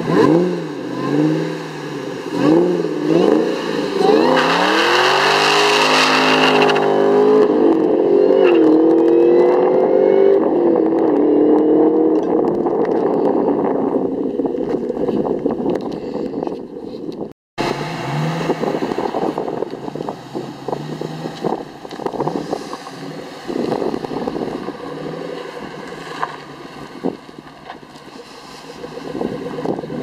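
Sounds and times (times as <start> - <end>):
car engine running: 0.0 - 8.0, 17.6 - 30.0
car engine idling and revving: 0.0 - 30.0.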